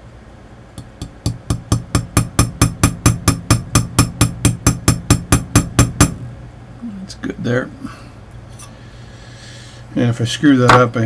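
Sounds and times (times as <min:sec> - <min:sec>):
small hammer tapping metal punch: 0:00.8 - 0:06.2.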